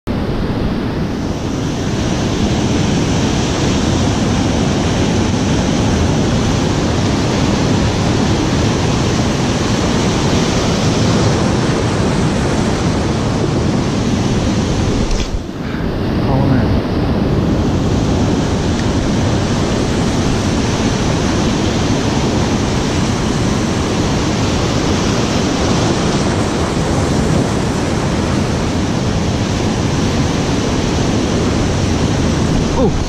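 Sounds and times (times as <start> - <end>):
wind on microphone: 0.0 - 33.0
ocean surf breaking on rocks: 0.1 - 33.0.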